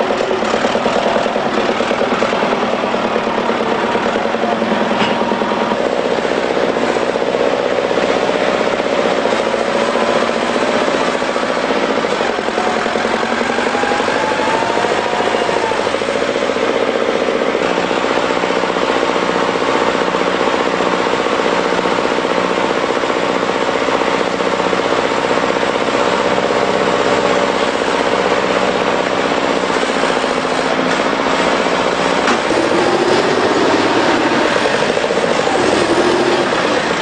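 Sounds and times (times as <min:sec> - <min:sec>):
diesel tractor engines under load: 0:00.0 - 0:37.0.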